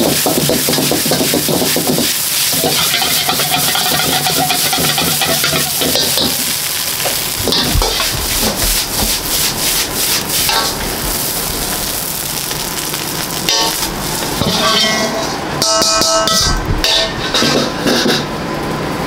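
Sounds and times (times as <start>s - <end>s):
food sizzling in hot oil: 0.0s - 15.5s
metal utensil clanking on wok: 0.1s - 8.6s, 13.5s - 18.3s.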